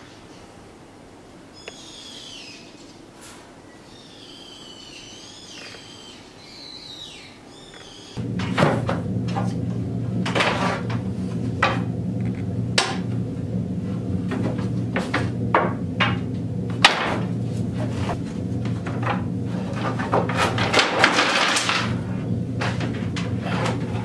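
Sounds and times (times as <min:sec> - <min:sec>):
steady low hum: 0:00.0 - 0:24.0
faint chirping whistles: 0:01.5 - 0:03.0, 0:03.6 - 0:08.2
wooden boards knocking: 0:14.3 - 0:22.0.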